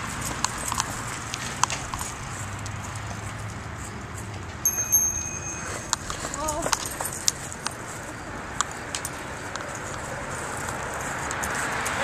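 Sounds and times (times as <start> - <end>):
street ambience: 0.0 - 12.0
thin high steady tone: 4.6 - 7.2.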